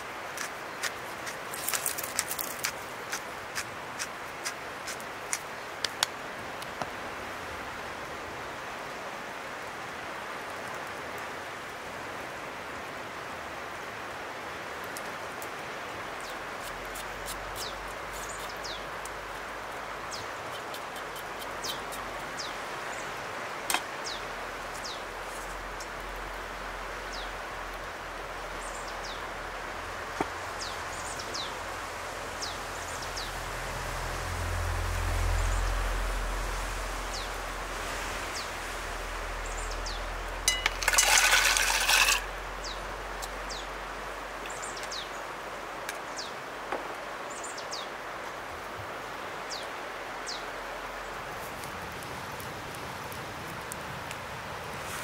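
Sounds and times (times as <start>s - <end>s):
steady rushing hiss: 0.0s - 55.0s.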